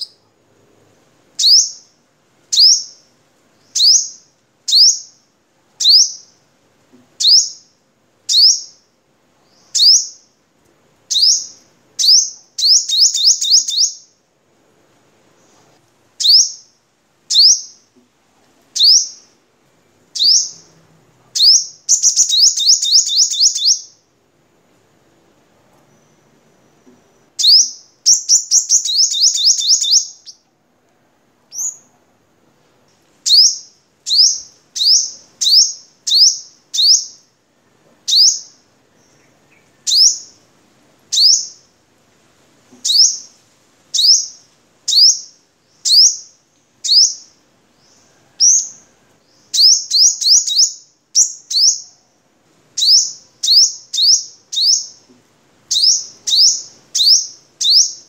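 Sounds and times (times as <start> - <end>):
sunbird singing: 0.0 - 0.3, 1.4 - 6.4, 7.2 - 7.7, 8.3 - 10.3, 11.1 - 14.2, 16.2 - 17.9, 18.8 - 19.4, 20.1 - 20.8, 21.4 - 24.1, 25.9 - 30.5, 33.3 - 37.3, 38.0 - 40.4, 41.1 - 41.7, 42.8 - 43.3, 44.0 - 52.1, 52.8 - 55.1, 55.7 - 58.0.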